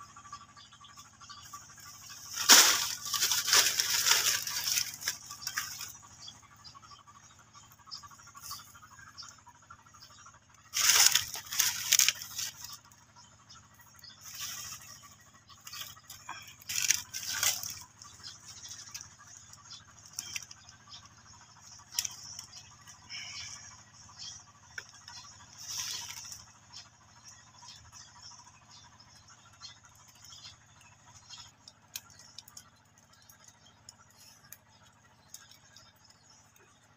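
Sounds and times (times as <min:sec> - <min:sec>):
dry leaves rustling: 0:01.6 - 0:06.2, 0:10.7 - 0:13.0, 0:14.2 - 0:20.7, 0:21.6 - 0:23.4, 0:24.8 - 0:26.7.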